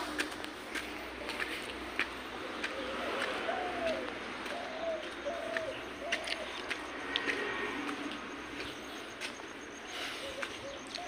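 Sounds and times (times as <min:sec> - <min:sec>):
pigeons cooing: 0:02.3 - 0:07.6, 0:10.0 - 0:11.0.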